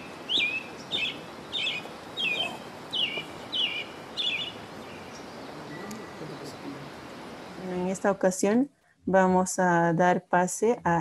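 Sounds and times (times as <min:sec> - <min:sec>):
bird calling: 0:00.0 - 0:07.6
background hiss: 0:00.0 - 0:11.0.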